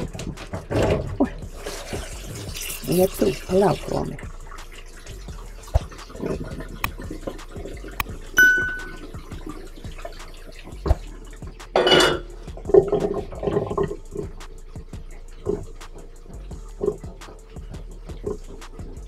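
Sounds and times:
tap water running into colander: 0.0 - 19.0
steel pot knocks and clinks: 8.4 - 9.2, 11.8 - 13.8
pot clanging on metal sink: 8.4 - 9.3, 11.8 - 14.0.

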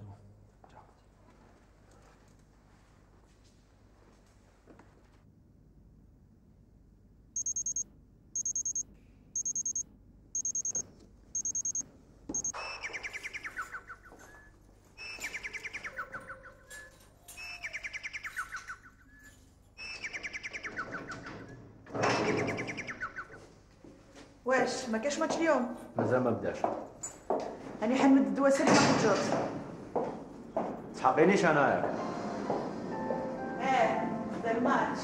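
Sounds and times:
high electronic beeping: 7.4 - 7.8, 8.4 - 8.8, 9.4 - 9.8, 10.4 - 10.8, 11.4 - 11.8, 12.4 - 12.6
warbling electronic ringtone: 7.4 - 7.8, 8.4 - 8.8, 9.4 - 9.8, 10.4 - 10.8, 11.4 - 11.8, 12.4 - 12.6.

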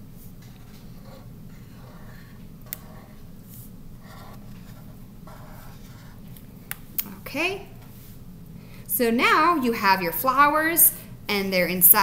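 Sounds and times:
steady low hum: 0.0 - 12.0
marker scratching on paper: 0.6 - 6.4.

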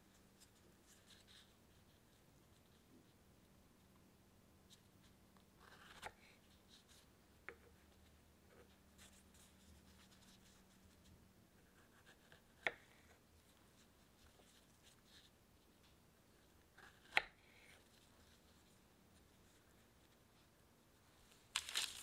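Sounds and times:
soft rustles of gloved hands: 17.8 - 22.0.

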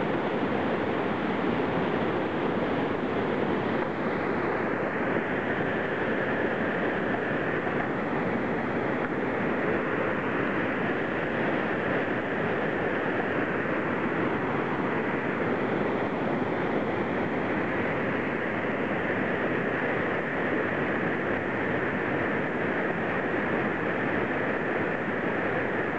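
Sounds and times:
whitewater rapids rushing over rocks: 0.0 - 25.9.

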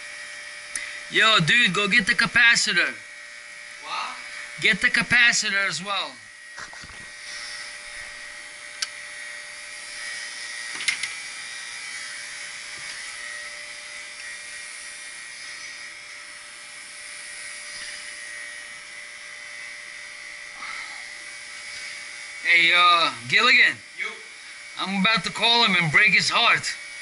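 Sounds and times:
machine whine: 0.0 - 27.0
hiss: 6.6 - 7.8, 17.4 - 18.2, 20.5 - 22.2.

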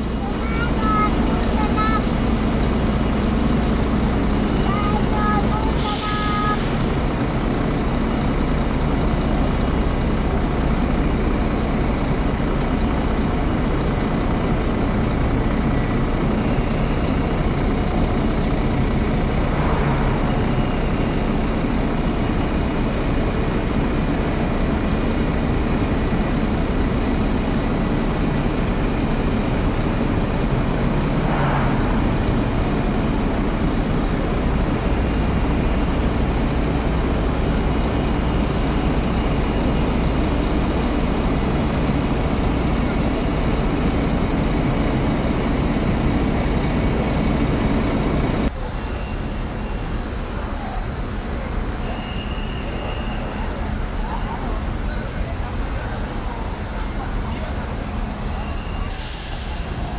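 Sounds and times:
road traffic rumble and hiss: 0.0 - 59.9.

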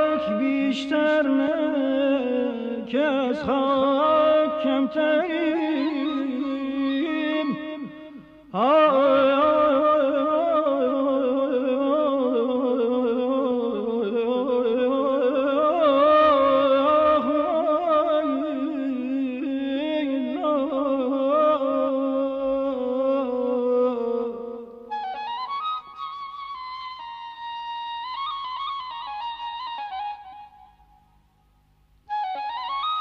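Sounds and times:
man singing: 0.0 - 24.8.

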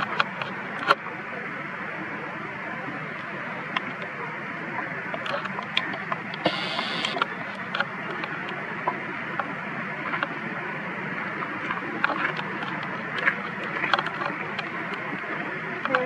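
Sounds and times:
low rumble and hiss: 0.0 - 16.0
faint clicks and ticks: 4.8 - 10.4, 11.4 - 16.0.

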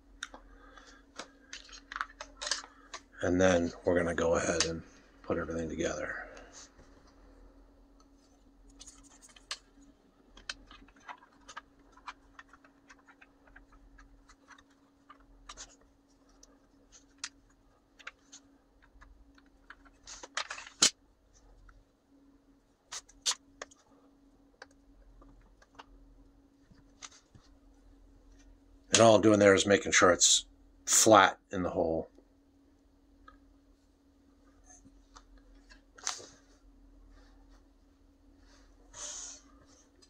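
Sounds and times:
faint hum: 0.0 - 40.0
plastic parts clicking and tapping: 1.1 - 3.1, 10.3 - 15.8
plastic parts clattering: 1.2 - 3.1.

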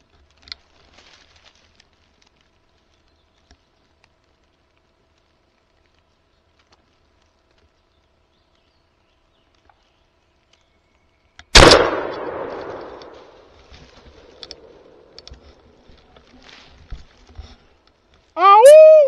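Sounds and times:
small knocks and rustles: 0.0 - 8.7, 12.5 - 18.4
shotgun blast echoing: 11.6 - 13.4.

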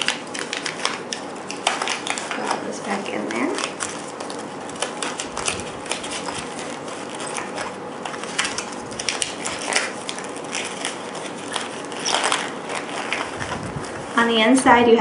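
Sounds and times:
medication packets crinkling: 0.0 - 14.4
fabric pouch rustling: 3.5 - 14.4.

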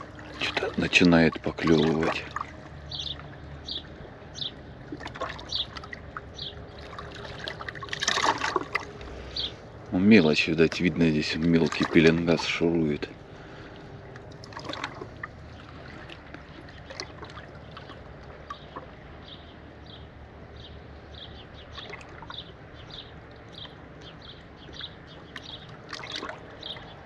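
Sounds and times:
sea water lapping at shore: 0.0 - 27.0.

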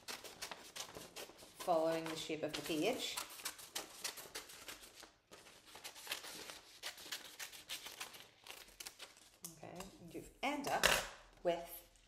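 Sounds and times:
paper rustling: 0.0 - 9.4
scissors snipping paper: 0.0 - 9.4.

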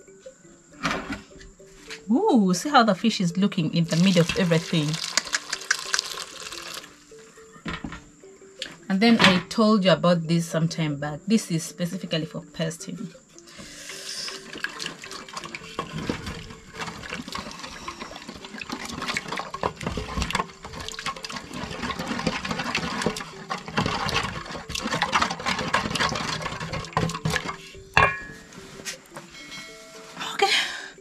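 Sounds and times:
liquid sloshing in metal basin: 3.8 - 7.0, 14.3 - 28.4.

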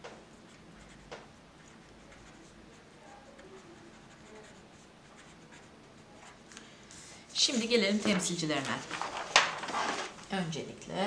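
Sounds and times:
marker scratching on paper: 0.4 - 6.4.

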